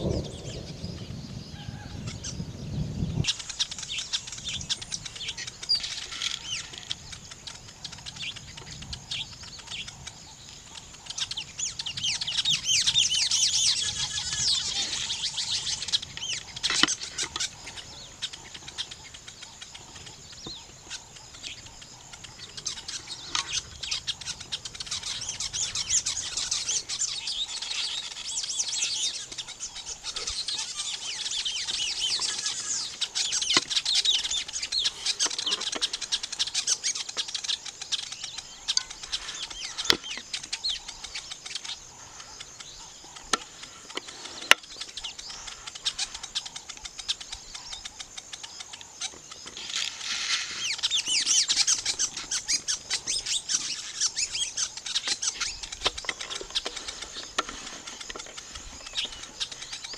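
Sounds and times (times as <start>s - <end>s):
weaver birds chattering: 0.0s - 59.9s.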